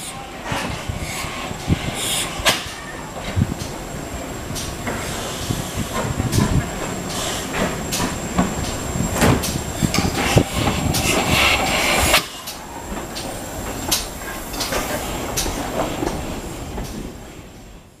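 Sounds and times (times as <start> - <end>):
steam hiss: 0.0 - 17.6
train wheels clicking over rail joints: 0.0 - 17.6.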